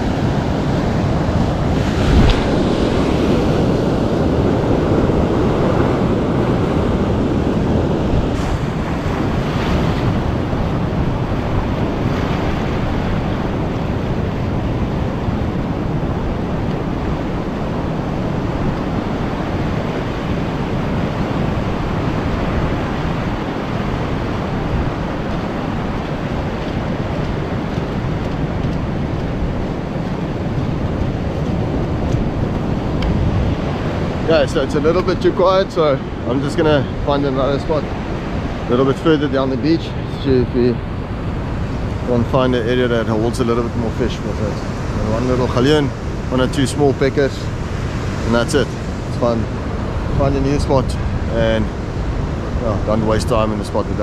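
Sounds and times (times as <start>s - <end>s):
surf breaking over rocks: 0.0s - 54.0s
wind buffeting microphone: 0.0s - 54.0s.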